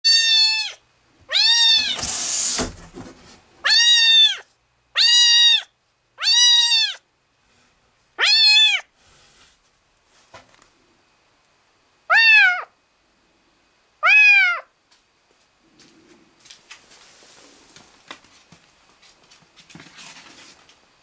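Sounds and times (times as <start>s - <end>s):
kitten meowing: 0.0s - 2.0s, 3.6s - 4.4s, 5.0s - 7.0s, 8.2s - 8.9s, 12.1s - 12.7s, 14.0s - 14.7s
rustle of handling: 9.0s - 10.8s, 15.3s - 20.9s.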